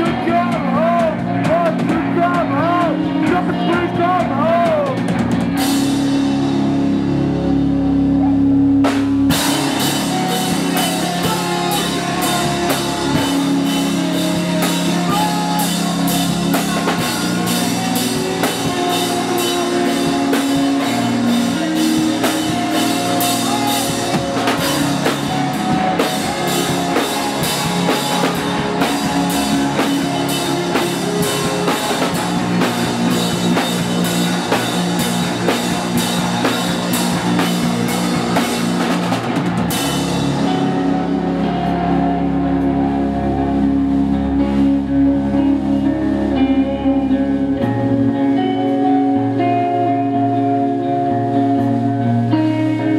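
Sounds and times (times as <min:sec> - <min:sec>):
rock band playing: 0:00.0 - 0:52.9
drum kit fast hits: 0:08.8 - 0:40.7.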